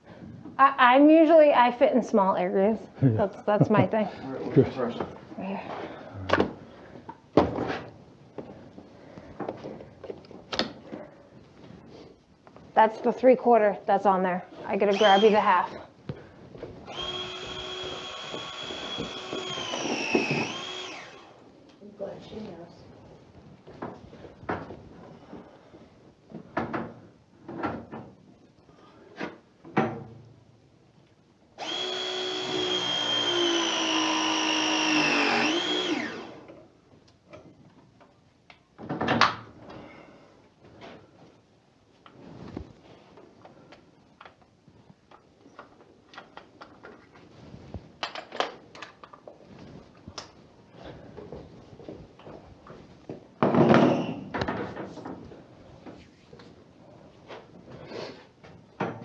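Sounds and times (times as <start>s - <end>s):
pipe press tool motor whine: 16.9s - 21.4s, 31.6s - 36.5s.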